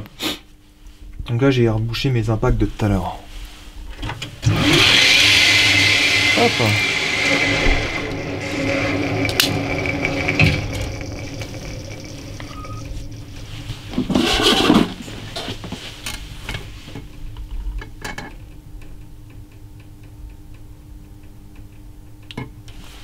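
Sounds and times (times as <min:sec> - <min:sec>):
rustling noise: 0:02.4 - 0:04.2, 0:07.8 - 0:17.0, 0:22.7 - 0:23.0.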